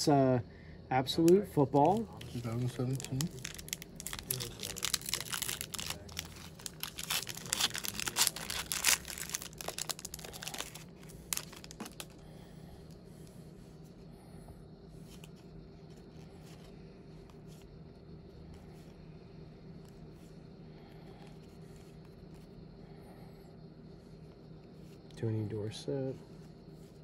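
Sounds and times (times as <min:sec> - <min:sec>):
wrapper tearing and crinkling: 0:01.8 - 0:12.2.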